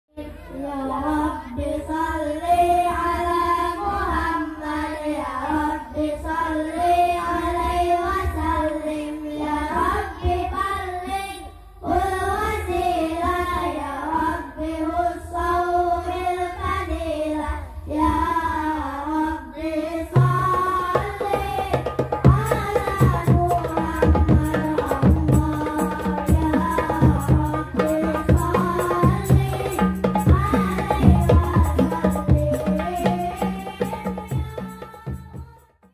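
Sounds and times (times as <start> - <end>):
boys singing devotional song: 0.1 - 35.9
hand drums beat: 20.2 - 35.9.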